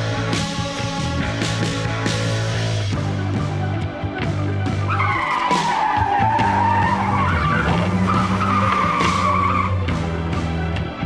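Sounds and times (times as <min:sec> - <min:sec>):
car tyre screech: 0:04.8 - 0:10.0.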